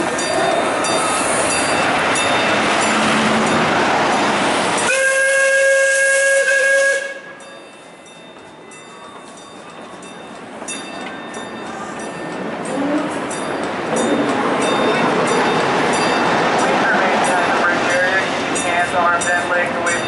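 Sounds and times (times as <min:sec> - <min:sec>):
steam whistle blast: 0:04.8 - 0:07.4.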